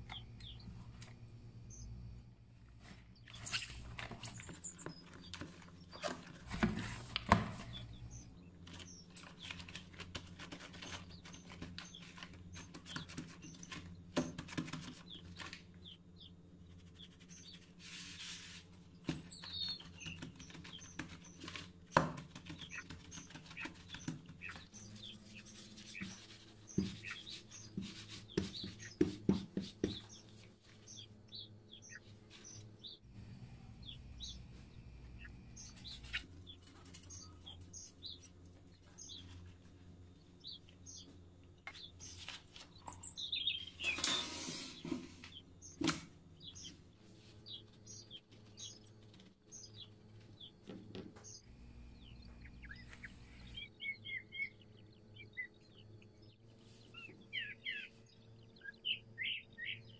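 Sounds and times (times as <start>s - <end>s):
low steady hum: 0.0s - 59.9s
small birds chirping: 0.0s - 59.9s
dough punched and rolled on counter: 27.7s - 30.1s.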